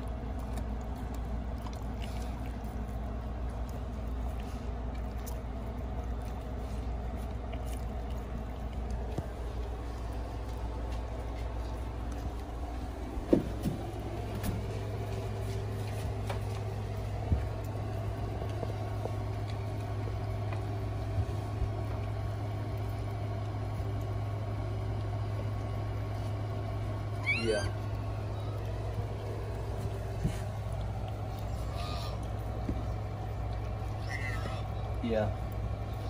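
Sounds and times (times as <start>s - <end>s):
steady low hum: 0.0s - 36.0s
puppy squealing: 27.1s - 28.5s, 31.5s - 32.3s, 34.0s - 34.8s.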